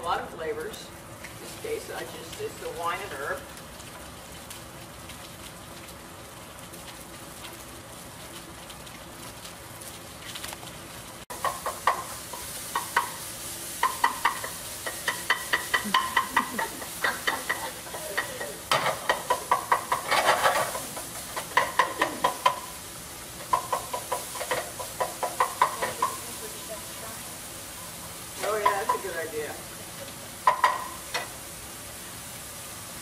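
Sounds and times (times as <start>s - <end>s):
meat sizzling in a skillet: 0.0s - 33.0s
spatula scraping a pan: 13.8s - 22.7s.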